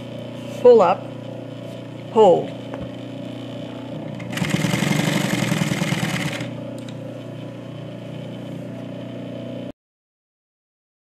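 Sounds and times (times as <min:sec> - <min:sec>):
steady hum: 0:00.0 - 0:09.7
sewing machine stitching: 0:04.2 - 0:06.6.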